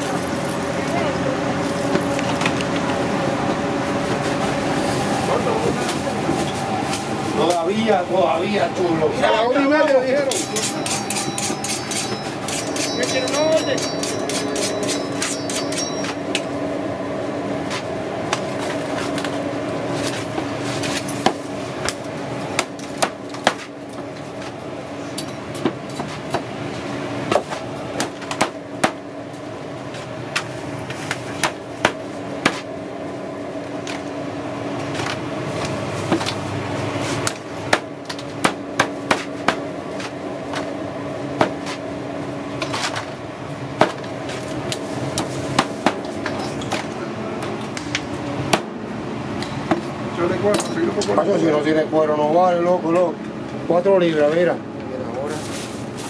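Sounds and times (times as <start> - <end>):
steady hum: 0.0 - 56.0
machete chopping on cutting board: 37.2 - 39.6.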